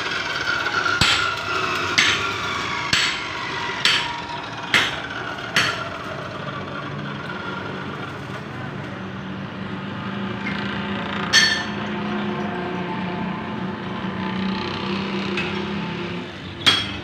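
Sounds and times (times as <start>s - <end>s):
hammer ringing on steel: 1.0s - 1.3s, 2.0s - 2.3s, 2.9s - 5.0s, 11.3s - 11.8s, 16.6s - 17.0s.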